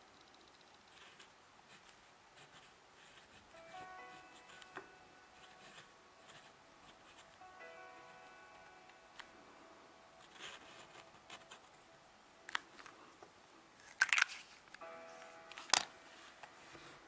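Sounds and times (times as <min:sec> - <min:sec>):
pen nib scratching on paper: 0:00.5 - 0:03.5.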